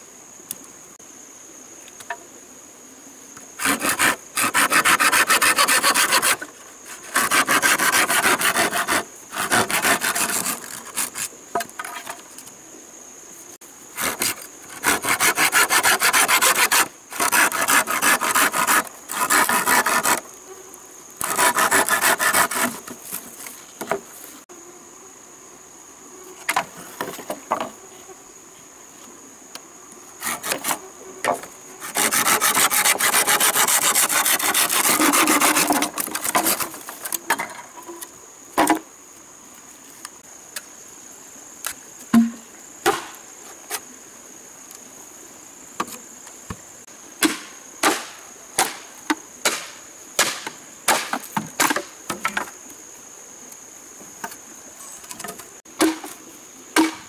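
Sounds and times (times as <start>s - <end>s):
high insect drone: 0.0s - 57.0s
hand saw cutting bamboo: 3.6s - 11.3s, 14.0s - 20.3s, 21.2s - 23.0s, 30.2s - 30.8s, 31.8s - 37.1s
knocks on wood: 42.2s - 43.1s.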